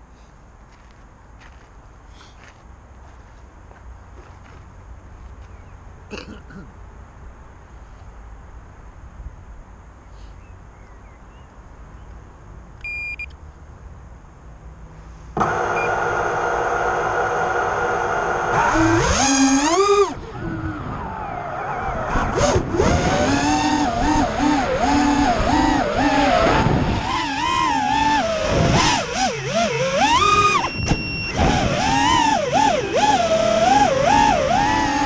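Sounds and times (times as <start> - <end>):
short beep: 12.8 - 13.3, 30.6 - 31.4
drone motors whining: 15.4 - 35.0.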